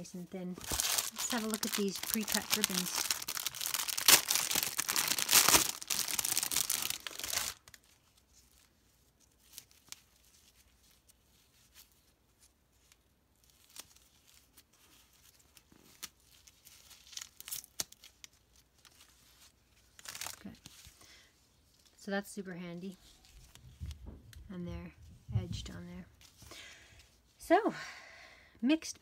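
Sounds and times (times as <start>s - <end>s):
ribbons and paper rustling: 0.0s - 27.4s
cellophane crinkling and tearing: 0.5s - 21.0s.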